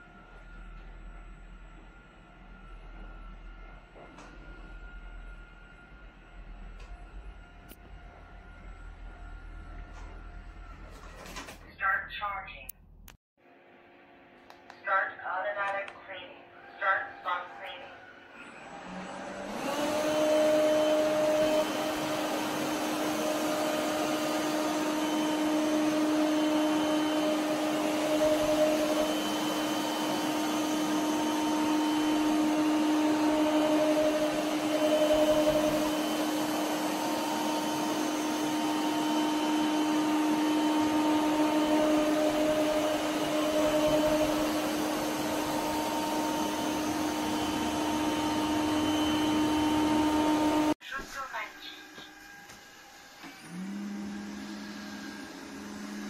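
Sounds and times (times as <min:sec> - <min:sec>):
robot vacuum motor hum: 0:18.4 - 0:50.8, 0:52.0 - 0:56.0.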